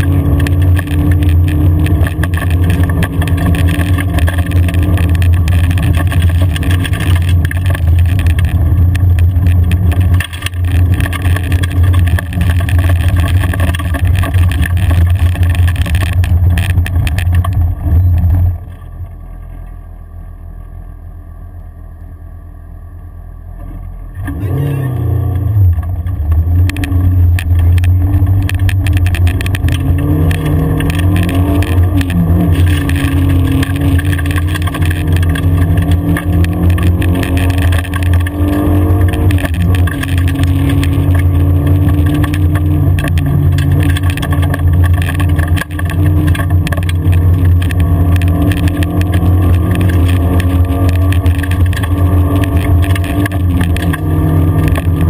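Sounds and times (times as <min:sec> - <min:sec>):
car engine pulling hard: 0:00.0 - 0:22.2, 0:22.8 - 0:55.0
gravel crackling under car: 0:00.0 - 0:55.0.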